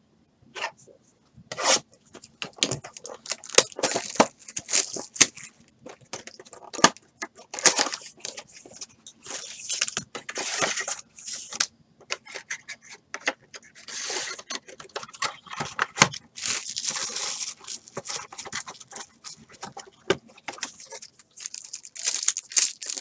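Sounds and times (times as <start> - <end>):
wrapping tearing and crinkling: 1.7 - 11.6, 16.2 - 23.0
card packs rustling: 1.7 - 12.5, 13.6 - 23.0.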